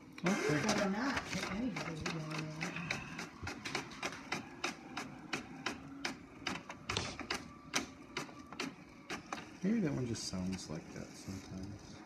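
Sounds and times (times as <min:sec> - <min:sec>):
printer paper feed clicking: 0:00.0 - 0:11.8.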